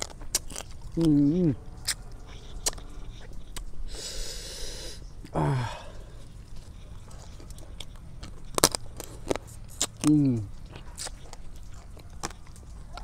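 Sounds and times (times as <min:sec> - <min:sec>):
chewing and lip clicks: 0:00.0 - 0:13.0
man's sharp hissing breath: 0:03.9 - 0:06.0.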